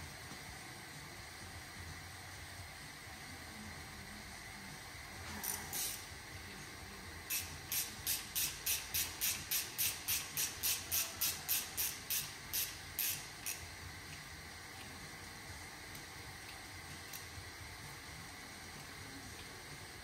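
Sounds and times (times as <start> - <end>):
ratchet wrench ratcheting: 5.4 - 6.1, 7.3 - 13.7.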